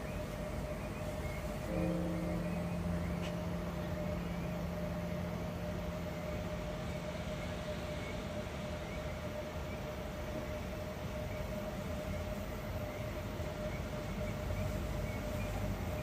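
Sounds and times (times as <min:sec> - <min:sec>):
thin hum: 0:00.0 - 0:10.8
deep drone: 0:00.0 - 0:16.0
low background rumble: 0:00.0 - 0:16.0.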